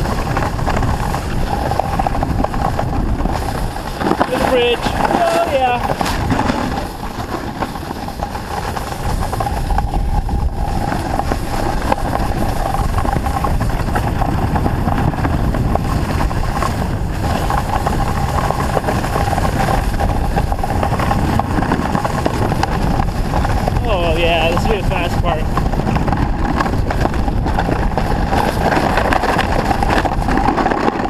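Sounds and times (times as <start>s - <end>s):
snowboard scraping over snow: 0.0s - 31.0s.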